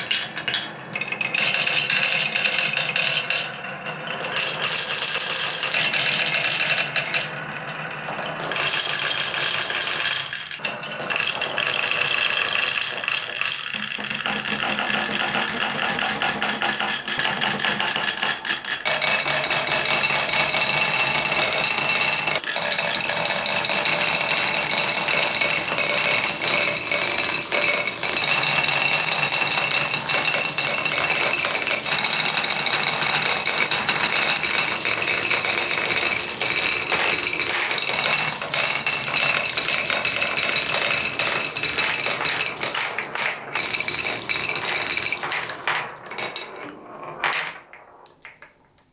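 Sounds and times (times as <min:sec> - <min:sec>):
marbles rattling on plastic rails: 0:00.0 - 0:48.9.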